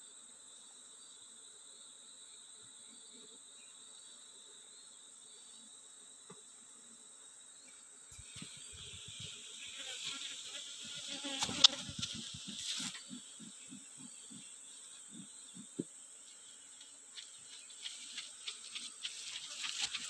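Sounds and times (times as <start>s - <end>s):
bees buzzing: 8.1s - 20.0s.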